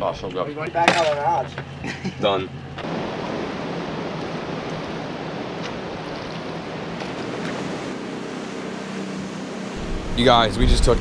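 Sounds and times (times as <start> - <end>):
surf breaking on rocks: 2.8 - 8.0.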